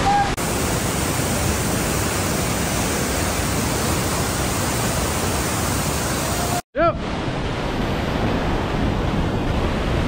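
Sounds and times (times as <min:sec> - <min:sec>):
creek whitewater rushing: 0:00.4 - 0:06.6.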